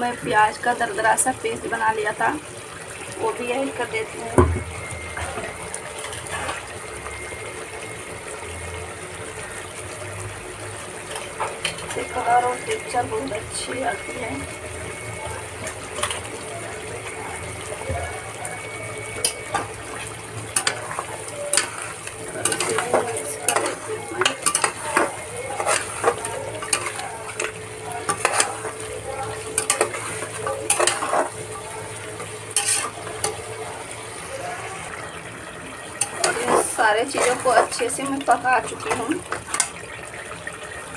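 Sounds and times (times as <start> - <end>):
gravy sizzling: 0.0 - 40.9
metal spatula scraping pot: 19.2 - 31.6, 32.5 - 33.5, 36.0 - 39.8.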